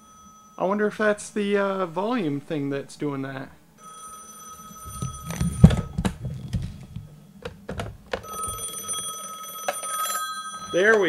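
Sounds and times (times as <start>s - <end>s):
telephone ringing: 0.0s - 11.0s
knocks and thump of phone handling: 4.9s - 8.6s.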